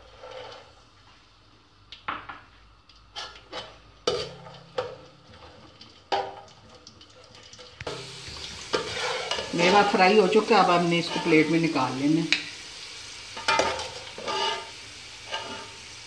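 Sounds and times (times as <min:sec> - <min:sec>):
faint frying sizzle: 0:00.0 - 0:16.0
metal spoon scraping metal pot: 0:08.7 - 0:10.0, 0:13.4 - 0:14.7.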